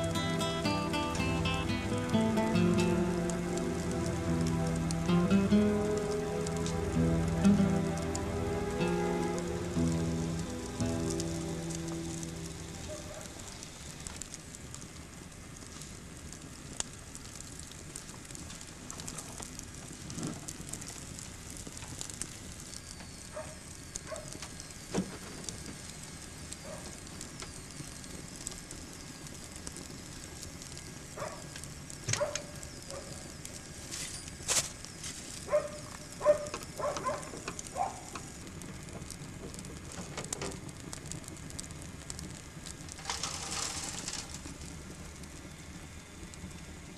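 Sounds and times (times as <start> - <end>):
wood fire crackling and hissing: 0.0 - 46.9.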